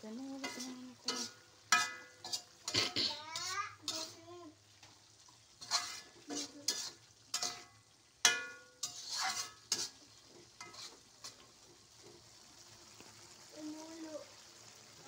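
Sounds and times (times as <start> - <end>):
faint sizzle: 0.0 - 15.0
spatula scraping a wok: 0.1 - 12.3.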